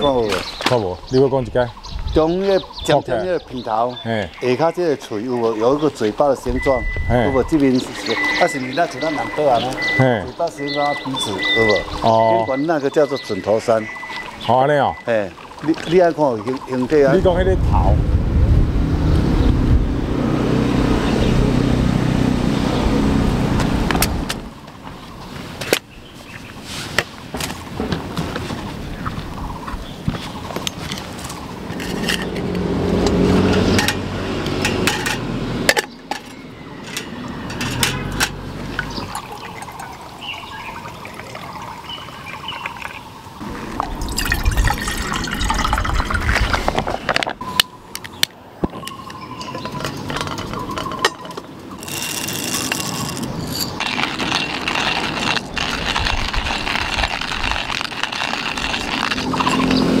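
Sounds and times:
pouring or hissing: 13.6s - 17.3s, 38.6s - 47.0s, 51.8s - 60.0s
metal cookware clinking: 33.4s - 39.9s, 48.8s - 51.5s.

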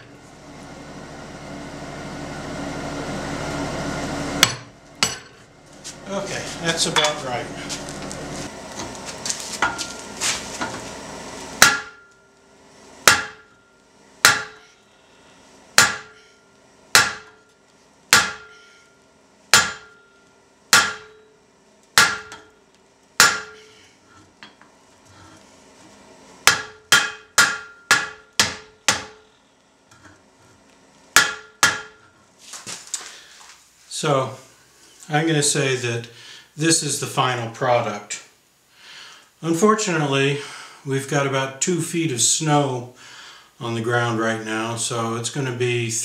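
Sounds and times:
anvil ringing: 4.4s - 5.4s, 11.6s - 12.2s, 13.1s - 14.7s, 19.6s - 20.2s, 20.8s - 21.3s, 23.2s - 23.7s, 26.5s - 29.2s
hammer striking hot metal: 4.4s - 5.5s, 6.6s - 7.4s, 11.6s - 12.3s, 13.0s - 14.7s, 15.8s - 17.5s, 18.1s - 18.7s, 19.5s - 21.4s, 22.0s - 22.5s, 23.2s - 23.7s, 26.4s - 29.3s, 31.2s - 32.1s.

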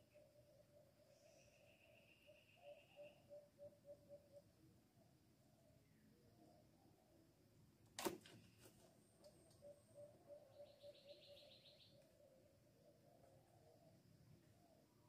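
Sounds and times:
bird trilling: 9.6s - 12.0s.

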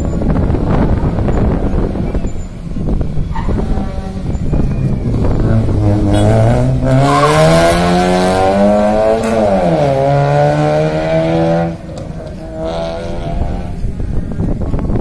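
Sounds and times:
car engine revving hard: 5.1s - 13.8s.

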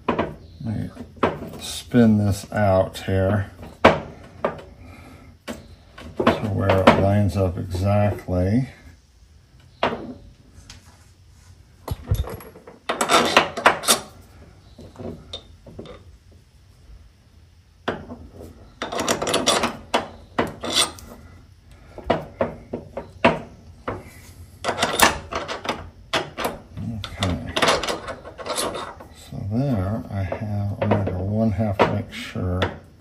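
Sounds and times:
metal clinking and rattling: 11.8s - 14.2s, 17.9s - 21.3s, 24.6s - 29.2s.

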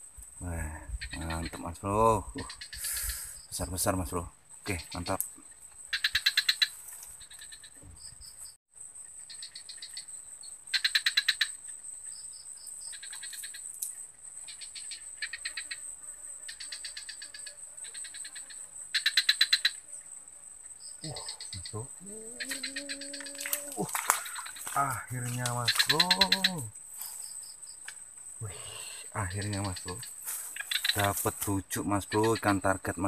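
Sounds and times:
frogs rapid clicking pulses: 0.0s - 8.5s, 9.1s - 20.0s, 20.6s - 33.0s
high-pitched insect drone: 20.8s - 33.0s.

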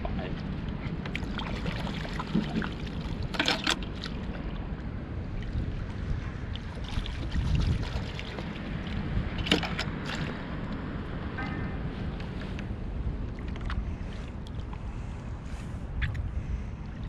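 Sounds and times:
rushing water and wind: 0.0s - 17.0s.

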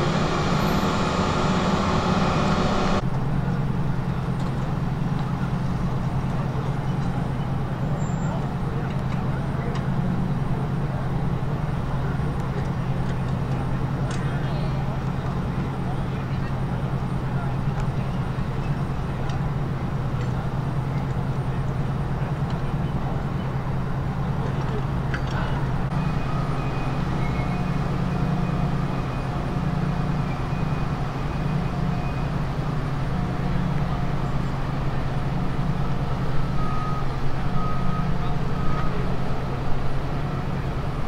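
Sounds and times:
heavy vehicle engine idling: 0.0s - 41.0s
reversing alarm beeps: 25.9s - 32.4s, 36.2s - 39.2s.

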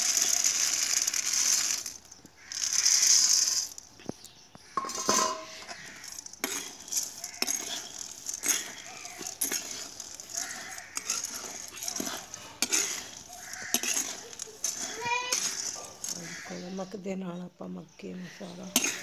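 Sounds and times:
corn kernels pattering into pan: 0.0s - 17.1s, 18.3s - 19.0s
steel ladle scraping pan: 4.8s - 16.7s, 18.7s - 19.0s.

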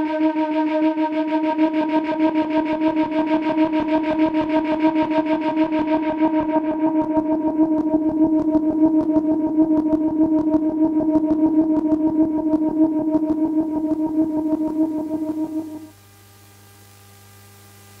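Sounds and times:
held synth note: 12.4s - 15.9s
low electrical mains hum: 12.7s - 18.0s.

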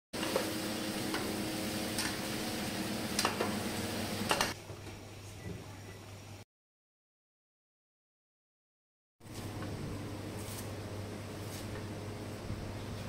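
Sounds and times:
meat sizzling in hot oil: 0.2s - 4.3s.

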